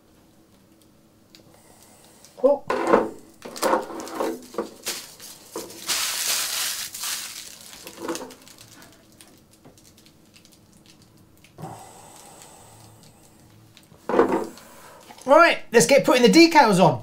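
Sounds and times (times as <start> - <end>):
plastic shell rustling and crackling: 3.4 - 11.6.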